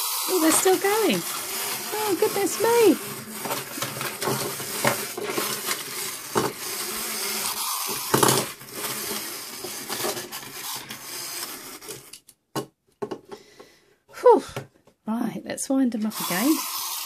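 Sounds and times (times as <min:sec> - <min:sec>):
clockwork toy motors buzzing: 0:00.0 - 0:12.2, 0:16.0 - 0:17.0
plastic toys knocking together: 0:03.0 - 0:11.1, 0:12.0 - 0:13.4.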